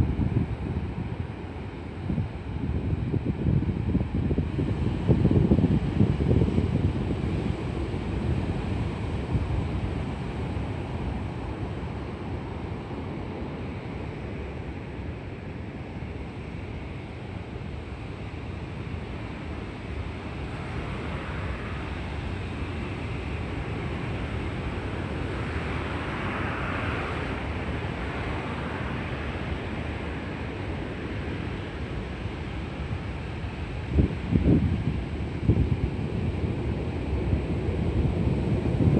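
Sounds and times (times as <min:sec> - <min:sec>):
heavy surf breaking on stony shore: 0:18.8 - 0:38.9.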